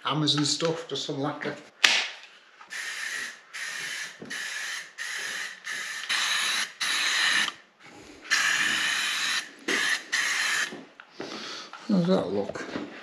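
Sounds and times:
aerosol can spraying in hissing bursts: 0:02.7 - 0:07.5, 0:08.3 - 0:10.8.

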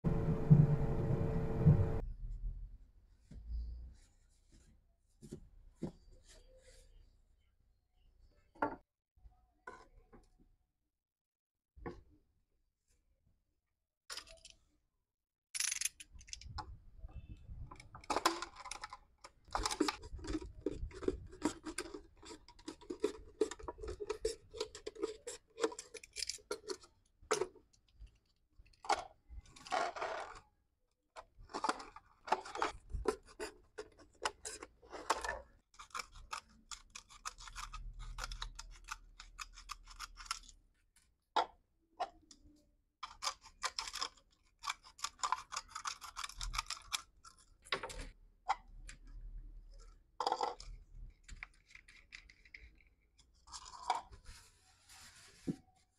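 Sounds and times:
plastic crackling and scraping: 0:16.2 - 0:30.6, 0:31.2 - 0:40.7, 0:43.0 - 0:55.9
scissors cutting plastic: 0:31.6 - 0:40.6, 0:43.0 - 0:47.6.

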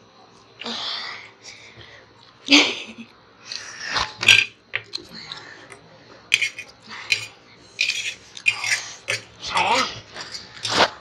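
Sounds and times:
forks clinking on metal plates: 0:06.3 - 0:09.3.

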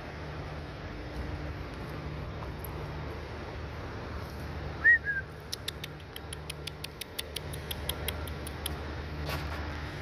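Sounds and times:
road traffic rumble: 0:00.0 - 0:10.0
rapid sharp high clicks: 0:05.4 - 0:08.9.

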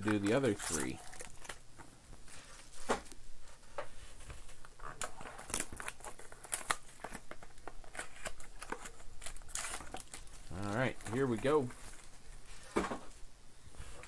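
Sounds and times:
foil wrapper crinkling and tearing: 0:00.0 - 0:01.6, 0:04.6 - 0:12.6
cards rustling and clicking: 0:00.0 - 0:13.1.

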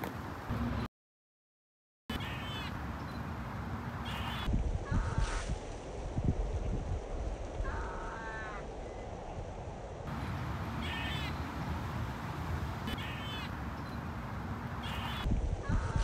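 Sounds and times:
animal calls rapid repeated notes: 0:10.8 - 0:11.4, 0:12.9 - 0:13.5, 0:14.8 - 0:16.0.

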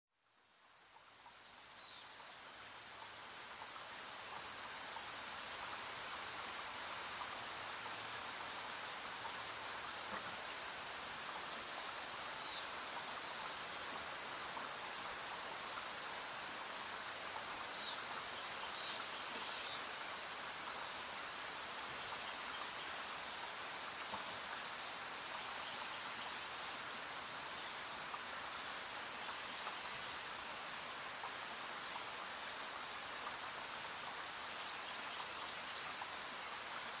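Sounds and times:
steady rain hiss: 0:00.1 - 0:37.0.

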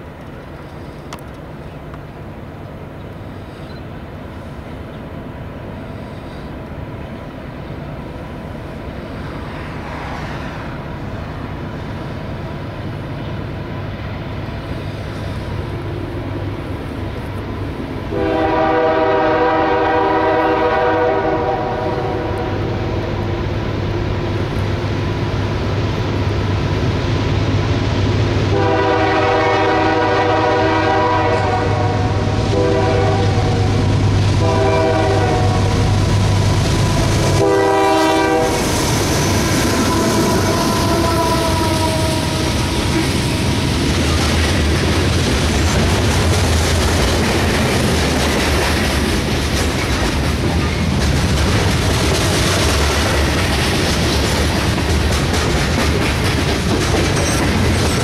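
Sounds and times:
train air horn blasts: 0:18.1 - 0:23.0, 0:28.5 - 0:36.0, 0:36.9 - 0:43.5.

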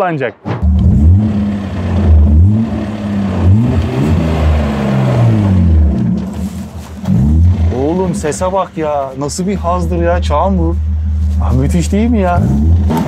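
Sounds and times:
car engine revving: 0:00.6 - 0:13.0.

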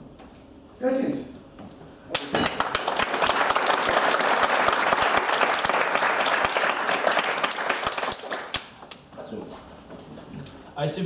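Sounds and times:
audience applauding: 0:02.1 - 0:08.9.

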